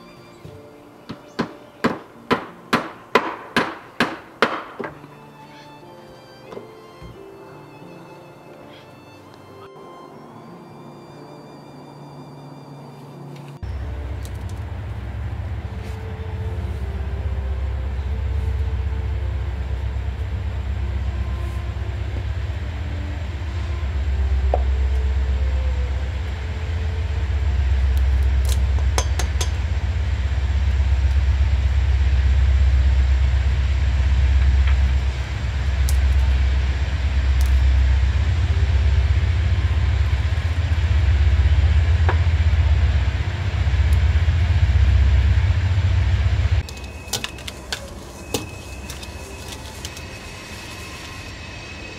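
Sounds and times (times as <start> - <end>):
steady low rumble: 13.2 - 51.9.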